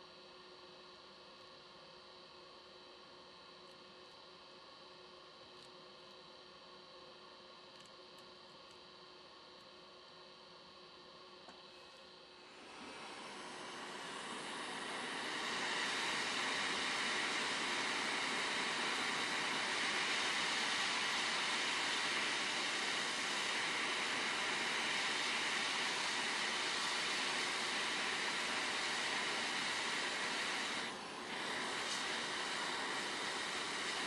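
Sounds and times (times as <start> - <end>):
hot air station hissing: 12.4 - 34.0.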